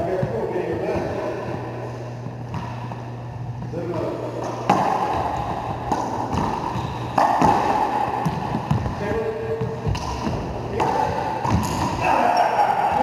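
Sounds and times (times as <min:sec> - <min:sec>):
ball cracking off racquets and walls: 0:03.6 - 0:12.0
shoe squeaking on floor: 0:06.7 - 0:07.1.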